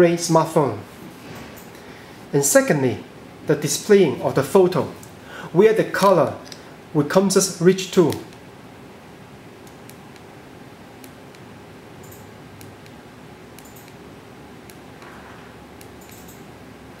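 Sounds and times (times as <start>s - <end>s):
room hiss: 0.0s - 17.0s.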